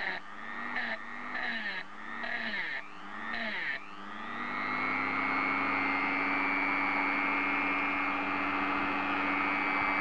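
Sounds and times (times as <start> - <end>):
rotary tool whining: 0.0 - 10.0.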